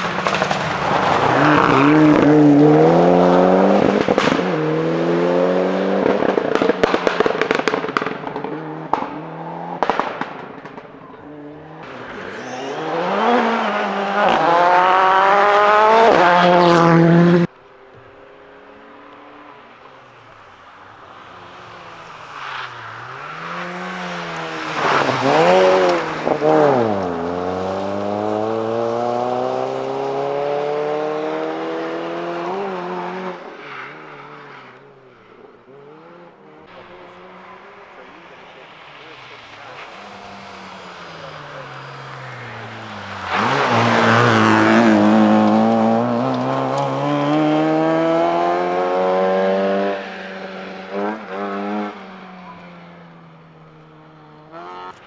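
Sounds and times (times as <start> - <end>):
rally car engine revving: 0.0 - 19.9, 21.1 - 55.0
approaching rally car engine: 0.0 - 55.0.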